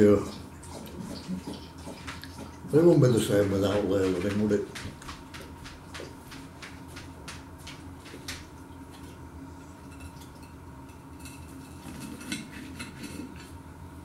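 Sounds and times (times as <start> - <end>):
knife scraping a ceramic plate: 11.2 - 13.6.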